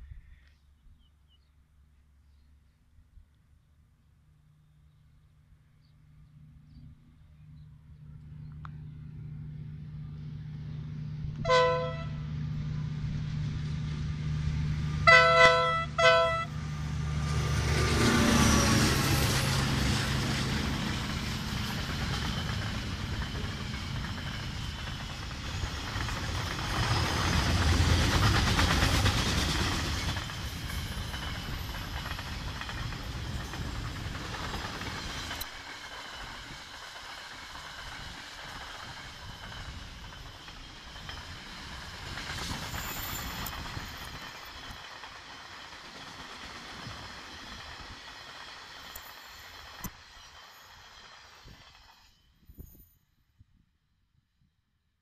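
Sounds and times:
diesel locomotive engine drone: 0:01.2 - 0:52.4
wagons rumbling on rails: 0:06.5 - 0:52.4
train horn: 0:11.4 - 0:12.3, 0:15.0 - 0:16.6.

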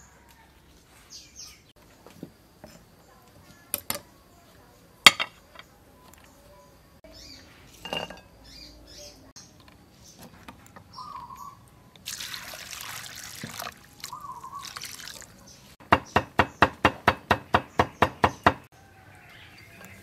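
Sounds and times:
water poured into a bowl: 0:12.0 - 0:15.5.

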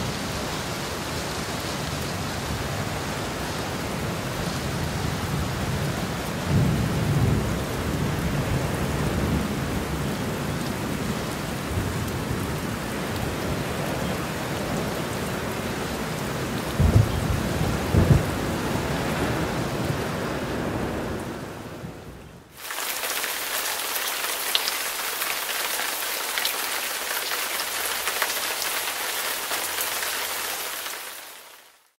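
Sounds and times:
heavy rain pouring: 0:00.0 - 0:31.9
thin steady water hiss: 0:22.5 - 0:31.9.

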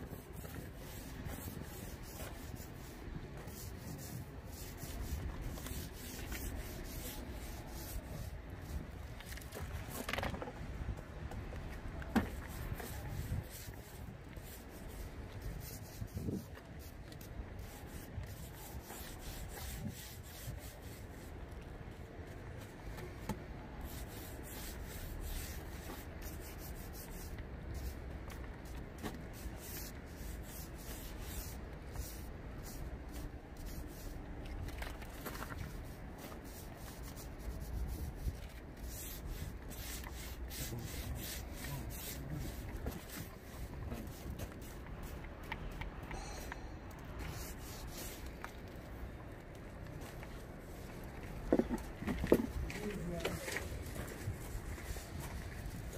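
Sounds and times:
roller rubbing over wet fiberglass: 0:00.0 - 0:10.2, 0:12.2 - 0:21.3, 0:29.1 - 0:45.3.

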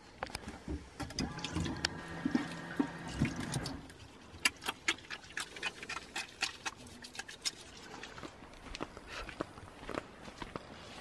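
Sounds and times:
electric water pump humming: 0:00.7 - 0:04.8.

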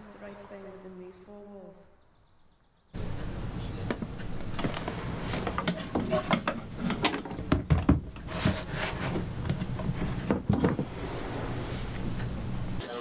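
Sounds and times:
steady low hum: 0:03.0 - 0:13.0.

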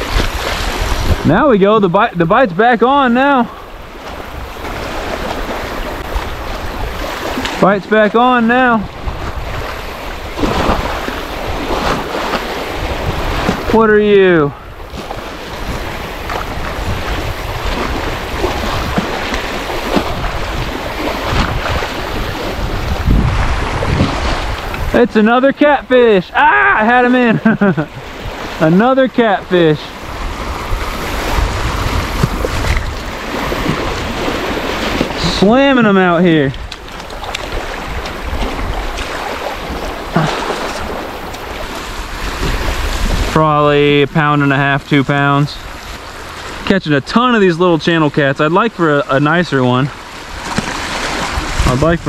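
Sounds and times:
wind rumbling on microphone: 0:00.0 - 0:02.0, 0:02.9 - 0:07.6, 0:08.6 - 0:25.2, 0:27.8 - 0:46.7, 0:49.8 - 0:52.0
small waves washing ashore: 0:00.0 - 0:52.0
water lapping at shore: 0:00.0 - 0:52.0
short splashes: 0:08.5 - 0:13.8, 0:14.5 - 0:25.0, 0:29.3 - 0:43.4.

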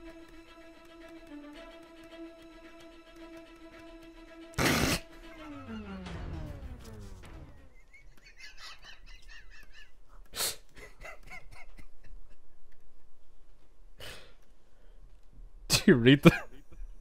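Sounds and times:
rhythmic wheezing: 0:04.5 - 0:05.6
person laughing breathlessly: 0:07.7 - 0:12.2.

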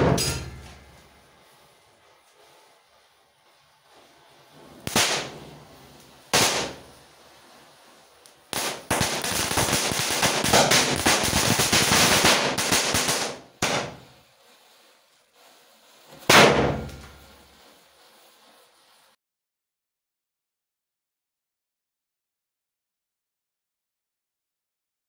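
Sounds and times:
firecracker bang: 0:00.0 - 0:01.3, 0:04.5 - 0:07.4, 0:08.5 - 0:14.2, 0:16.1 - 0:17.4
rapid crackling pops: 0:00.2 - 0:19.1.

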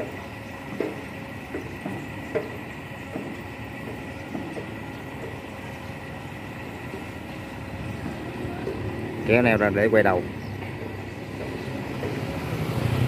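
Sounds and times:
diesel engine running: 0:00.0 - 0:13.0
thin constant whine: 0:00.0 - 0:13.0.

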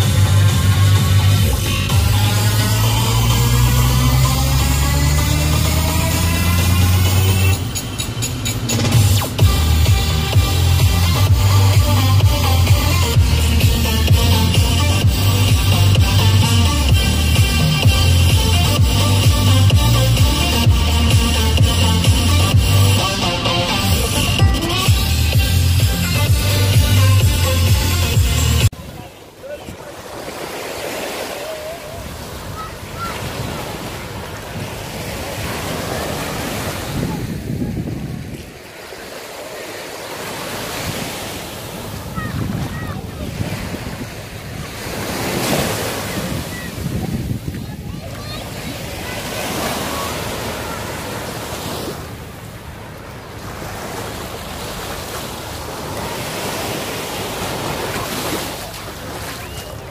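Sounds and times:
waves lapping on shore: 0:00.0 - 0:59.9
wind on microphone: 0:31.9 - 0:38.7, 0:40.7 - 0:50.2.

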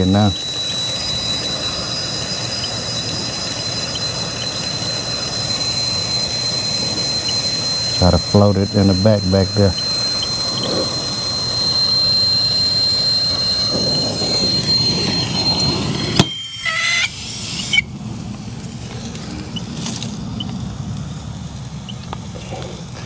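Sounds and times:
short squeaks: 0:00.0 - 0:17.9
brazing torch hissing and whistling: 0:00.0 - 0:23.0
low hum: 0:00.0 - 0:23.0
torch shut-off pop: 0:13.4 - 0:18.4.

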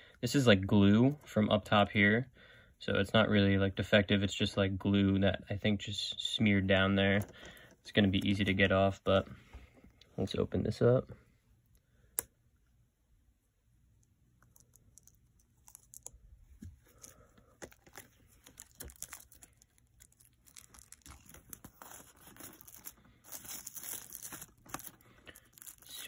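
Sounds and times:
plastic shrink-wrap crinkling: 0:14.5 - 0:26.0.

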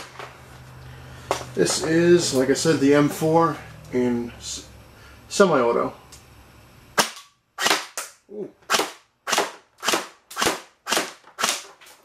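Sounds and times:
airsoft rifle shots: 0:07.0 - 0:11.7.

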